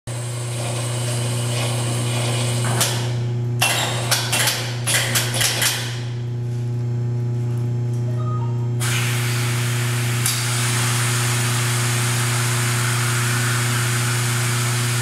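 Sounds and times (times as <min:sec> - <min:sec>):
vacuum lifter hum: 0:00.1 - 0:05.2, 0:05.8 - 0:15.0.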